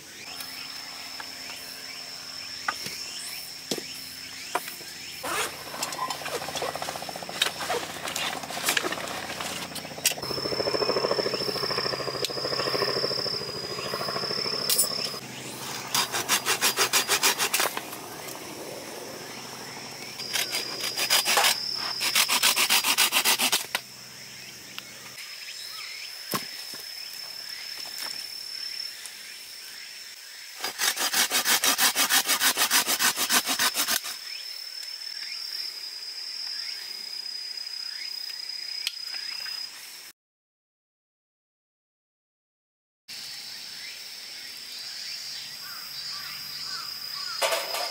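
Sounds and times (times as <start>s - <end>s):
hand saw cutting branches: 5.2s - 10.3s, 14.0s - 18.4s, 20.0s - 23.8s, 30.6s - 34.2s.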